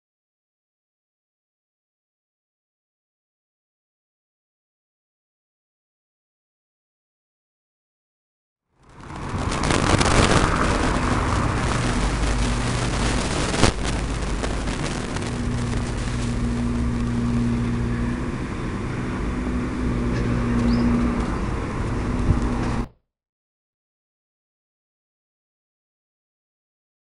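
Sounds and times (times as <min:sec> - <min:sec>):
car driving past: 0:08.8 - 0:22.9
low engine hum: 0:08.8 - 0:22.9.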